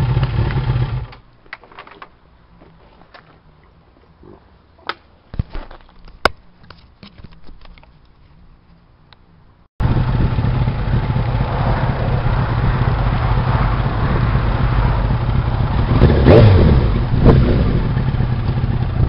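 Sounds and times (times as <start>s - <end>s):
motorcycle engine running: 0.0s - 1.1s, 9.8s - 19.0s.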